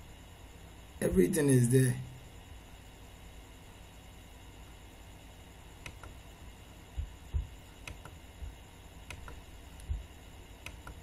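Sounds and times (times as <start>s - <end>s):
computer mouse clicking: 5.8s - 6.2s, 7.8s - 8.2s, 9.0s - 9.9s, 10.6s - 11.0s
soft low thumps: 6.9s - 8.6s, 9.2s - 10.1s.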